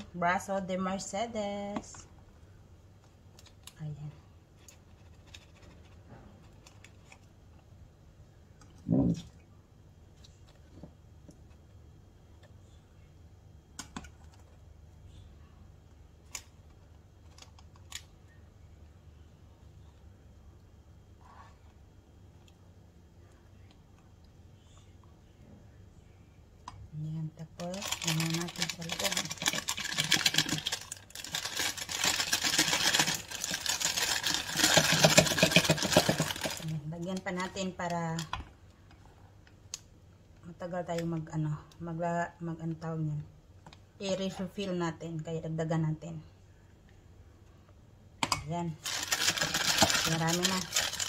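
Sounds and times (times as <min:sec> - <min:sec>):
low steady hum: 0:00.0 - 0:51.0
plastic piping bag crinkling: 0:27.6 - 0:36.8, 0:48.8 - 0:51.0.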